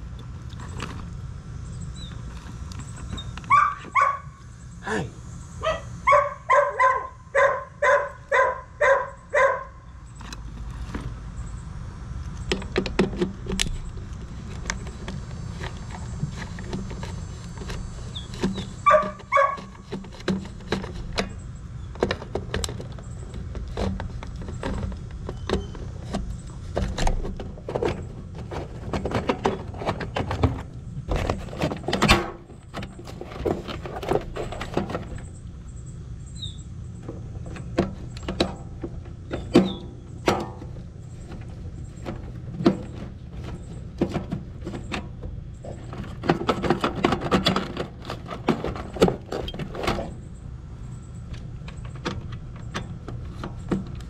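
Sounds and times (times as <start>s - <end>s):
steady low hum: 0.0s - 54.0s
dog barking: 3.5s - 4.4s, 5.6s - 9.8s, 18.8s - 19.6s.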